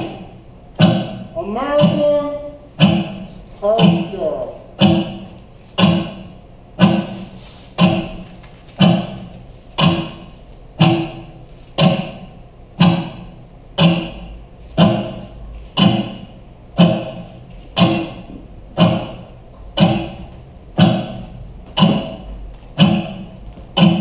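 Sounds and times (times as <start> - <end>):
wood-block-like knock: 0.8 - 15.2, 15.8 - 24.0.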